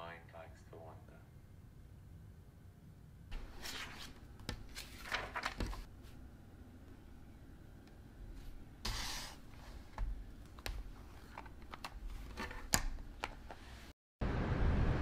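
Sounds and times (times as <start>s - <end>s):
notebook closing rustle: 3.4s - 5.9s.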